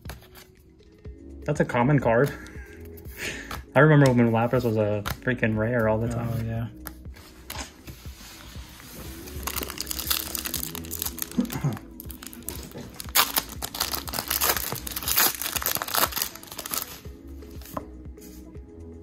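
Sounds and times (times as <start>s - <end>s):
foil wrapper tearing and crinkling: 9.3s - 17.0s.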